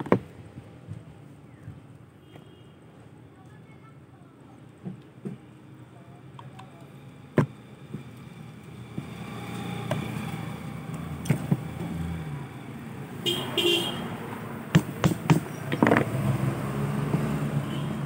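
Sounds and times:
engine humming: 0:06.4 - 0:18.0.

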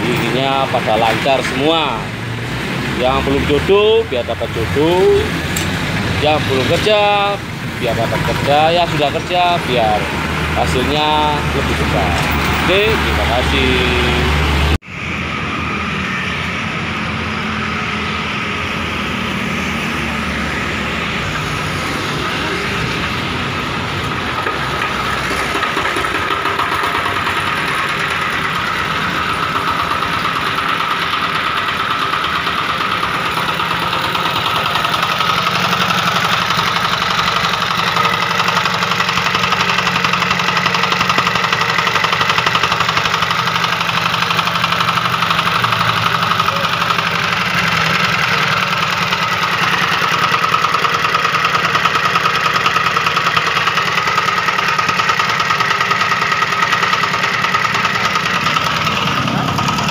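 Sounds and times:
diesel engine knocking: 0:00.0 - 0:14.6, 0:19.6 - 0:59.9.

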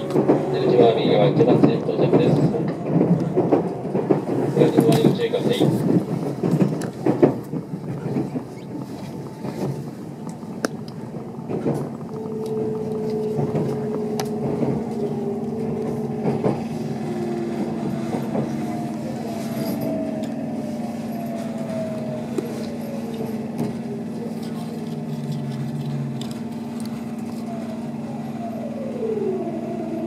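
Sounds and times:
electric train motor whine: 0:06.5 - 0:30.0.

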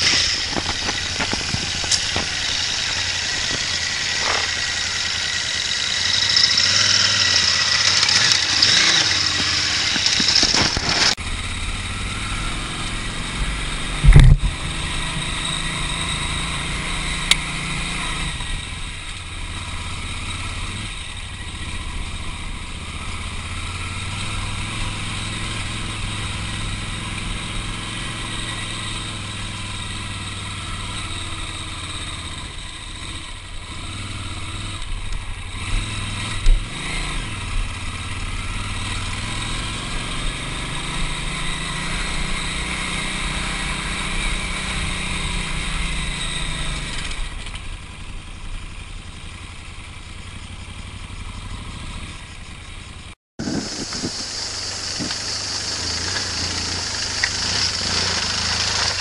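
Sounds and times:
motorcycle engine revving: 0:00.0 - 0:59.0
steady rushing noise: 0:53.4 - 0:59.0.

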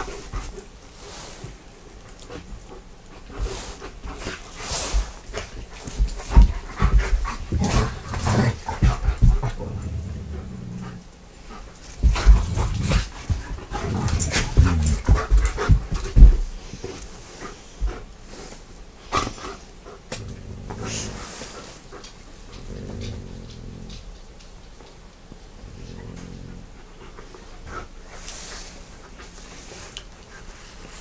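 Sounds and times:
dog panting: 0:00.0 - 0:23.9.

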